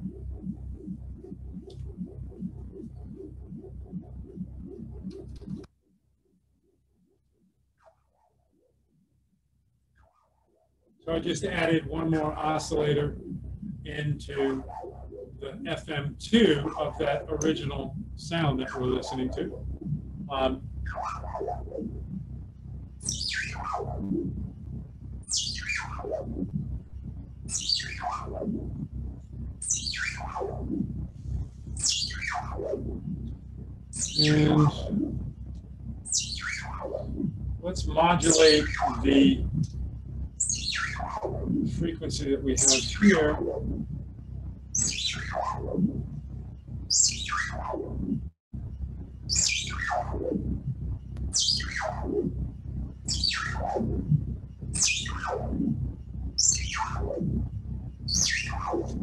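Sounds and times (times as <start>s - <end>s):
falling synthesizer pitch sweeps: 0.0s - 5.7s, 11.1s - 39.7s, 40.3s - 44.0s, 44.7s - 46.2s, 46.8s - 48.3s, 49.2s - 59.0s
low synthesizer drone: 0.0s - 10.0s, 10.8s - 59.0s.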